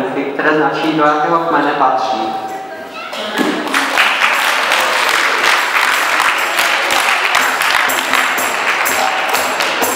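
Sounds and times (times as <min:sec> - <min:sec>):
audience applauding: 0:03.1 - 0:09.9
music: 0:04.3 - 0:09.9.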